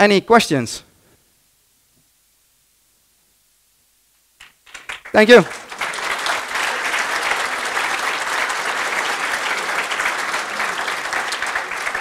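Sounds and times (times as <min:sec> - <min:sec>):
audience applauding: 0:04.4 - 0:12.0.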